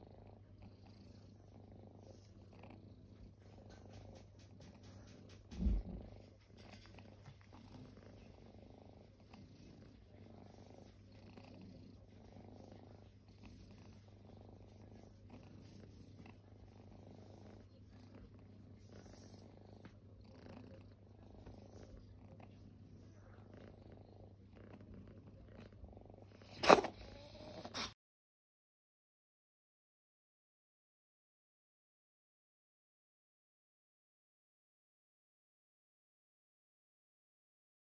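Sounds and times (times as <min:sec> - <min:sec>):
kitten purring: 0:00.0 - 0:28.0.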